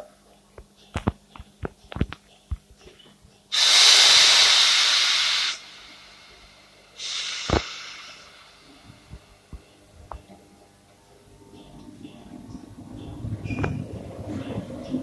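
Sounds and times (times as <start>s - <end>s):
compressed air hissing: 3.5s - 9.4s.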